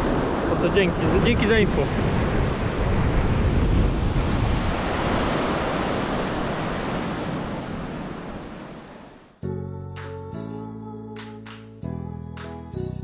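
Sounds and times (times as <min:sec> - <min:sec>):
wind on microphone: 0:00.0 - 0:08.8
surf washing onto shore: 0:00.0 - 0:09.1
background music: 0:09.4 - 0:13.0.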